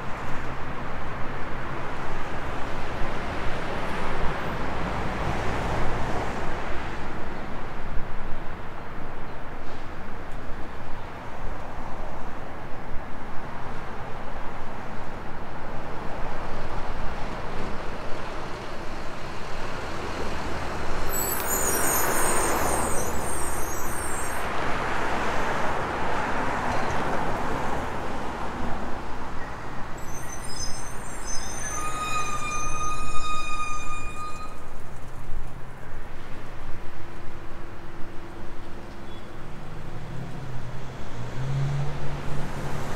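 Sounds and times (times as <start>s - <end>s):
brakes squealing: 21.0s - 24.5s, 29.9s - 35.7s
vehicles passing: 38.3s - 42.9s.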